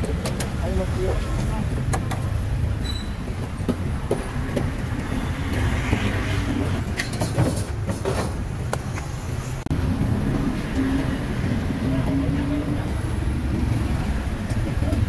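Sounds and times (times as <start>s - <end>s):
traffic rumble: 0.0s - 15.0s.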